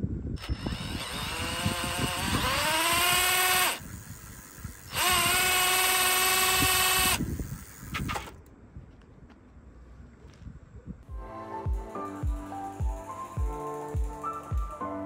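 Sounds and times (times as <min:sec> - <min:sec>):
drill motor whining: 0:00.4 - 0:08.3.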